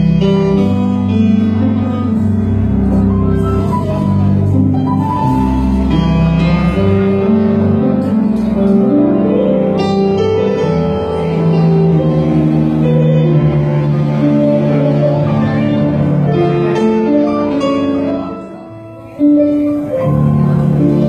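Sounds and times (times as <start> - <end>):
live band music: 0.0 - 10.2
steady bass line: 0.0 - 21.0.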